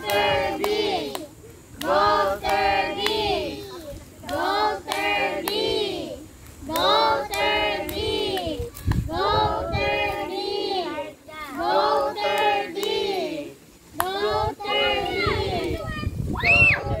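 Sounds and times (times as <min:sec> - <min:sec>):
children singing together: 0:01.8 - 0:15.8.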